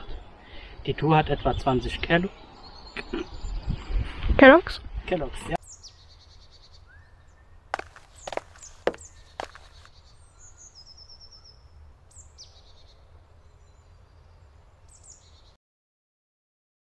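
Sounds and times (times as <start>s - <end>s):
small birds chirping: 5.6s - 15.6s
sharp taps: 7.8s - 9.9s.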